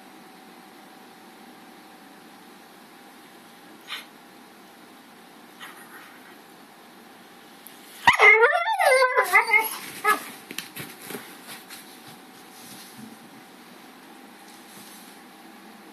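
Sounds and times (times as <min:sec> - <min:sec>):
dog barking and yowling: 0:08.0 - 0:10.4.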